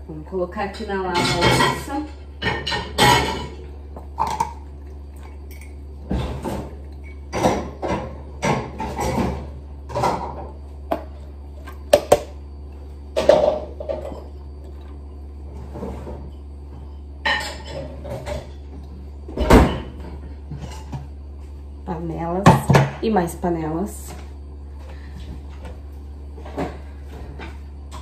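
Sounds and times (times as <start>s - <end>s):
steady low hum: 0.0s - 28.0s
crockery and pans clattering: 1.1s - 3.6s.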